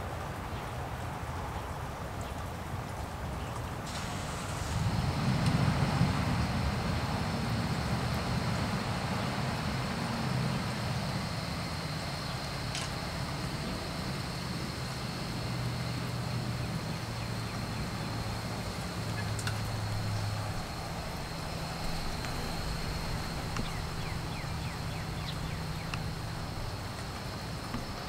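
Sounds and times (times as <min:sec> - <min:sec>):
light rain falling: 0:00.0 - 0:28.0
low hum: 0:03.9 - 0:28.0
sharp drip ticks: 0:16.6 - 0:28.0.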